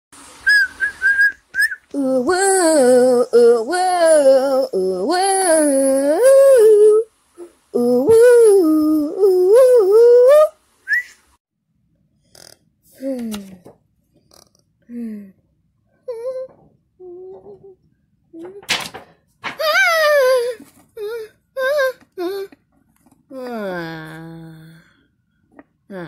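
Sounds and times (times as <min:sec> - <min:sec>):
whistled notes: 0:00.4 - 0:01.9, 0:10.8 - 0:11.2
person singing wordless tune: 0:01.9 - 0:10.6.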